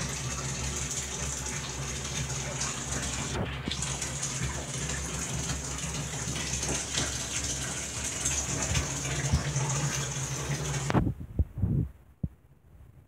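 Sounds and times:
tap water running into bathtub: 0.0s - 11.0s.

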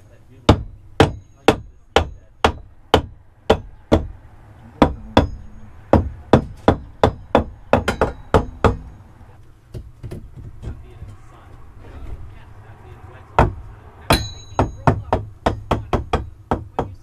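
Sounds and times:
metallic ring: 1.1s - 2.4s, 4.9s - 5.9s, 14.1s - 15.0s
claw hammer striking metal: 4.8s - 9.0s, 13.4s - 16.9s.

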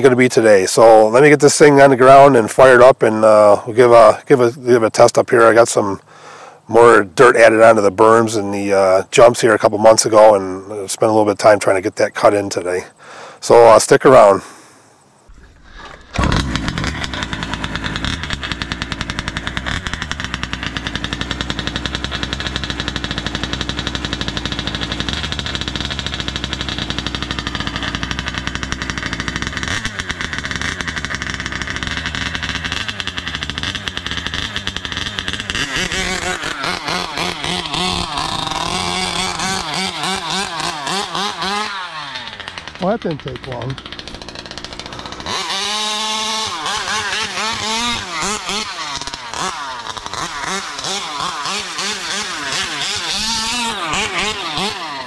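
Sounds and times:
small two-stroke engine idling and revving: 15.3s - 55.0s.

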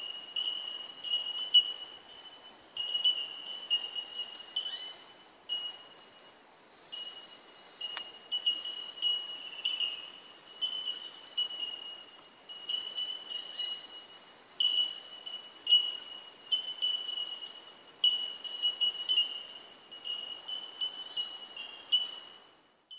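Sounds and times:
birds calling high notes: 6.8s - 22.4s.

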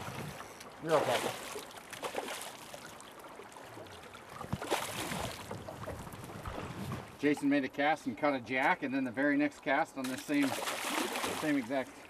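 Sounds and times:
fish splashing at surface: 10.0s - 11.6s.

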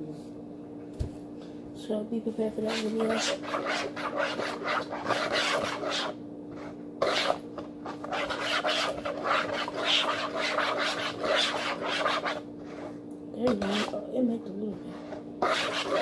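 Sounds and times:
spoon scraping plastic bowl: 2.7s - 14.0s, 14.7s - 16.0s.

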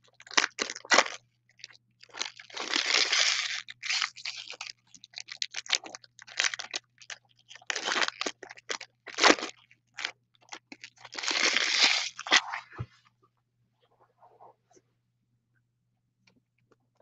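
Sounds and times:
foil wrapper crinkling and tearing: 0.0s - 12.5s.

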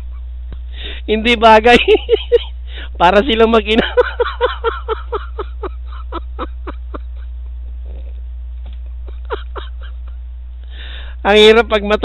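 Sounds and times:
low electrical hum: 0.0s - 12.0s
person laughing: 3.2s - 8.1s, 8.9s - 10.2s.

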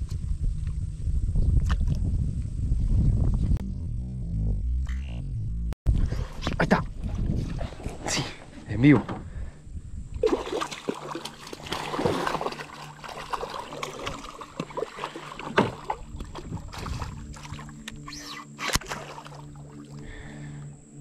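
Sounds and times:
steady low hum: 2.1s - 21.0s
fish splashing in water: 10.2s - 17.8s, 18.7s - 20.0s.

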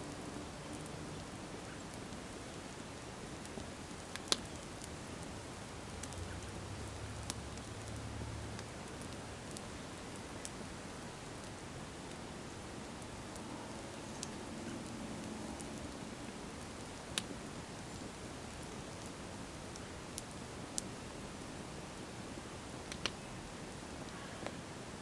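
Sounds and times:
fire hissing and crackling: 0.0s - 25.0s.

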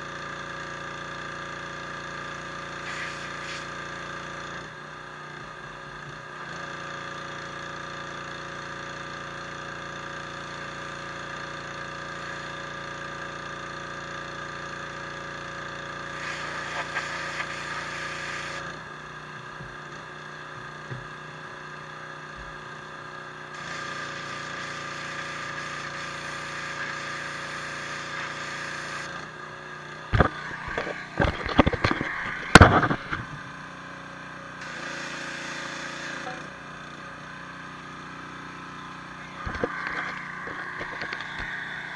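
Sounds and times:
pressure washer jet hissing: 2.7s - 3.9s, 16.0s - 18.6s, 23.6s - 29.2s, 34.6s - 36.4s.

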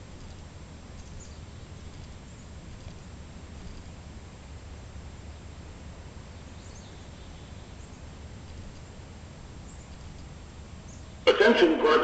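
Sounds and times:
low steady rumble: 0.0s - 12.0s
faint high bird chirps: 6.4s - 8.0s.

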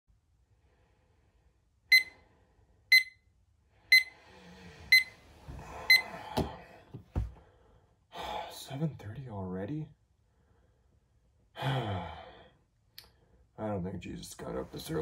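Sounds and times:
alarm clock beeping: 1.9s - 2.2s, 2.9s - 3.2s, 3.9s - 4.1s, 4.9s - 5.1s, 5.9s - 6.1s.

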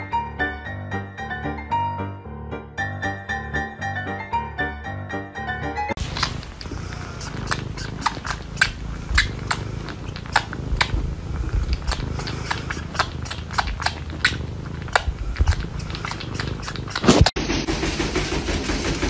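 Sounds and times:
cat chewing hair: 6.0s - 17.4s
cat purring: 6.0s - 18.9s.

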